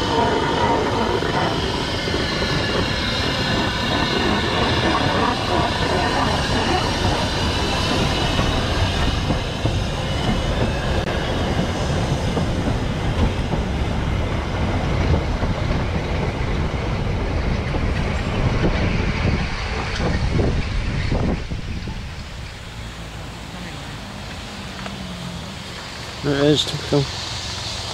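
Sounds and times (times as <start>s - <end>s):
high wheel squeal: 0.0s - 14.1s
steam train rolling past: 0.0s - 27.9s
wheels clattering over rail joints: 0.0s - 27.9s.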